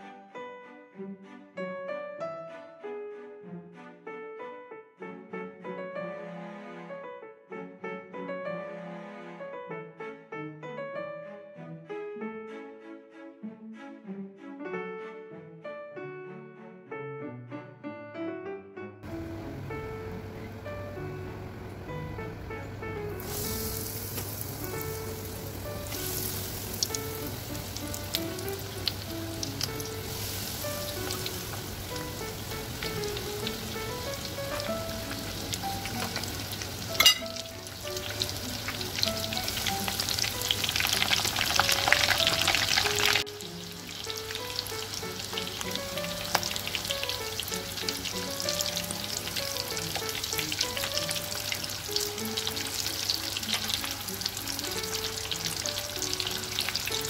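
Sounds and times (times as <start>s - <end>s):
soft background music: 0.0s - 57.0s
chicken frying in hot oil: 23.1s - 57.0s
spoon turning food in oil: 23.2s - 43.2s.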